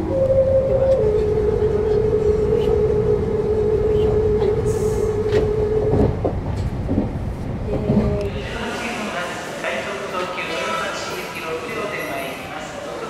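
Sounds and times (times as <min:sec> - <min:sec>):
train music horn: 0:00.0 - 0:06.1
train rumbling on rails: 0:00.0 - 0:12.0.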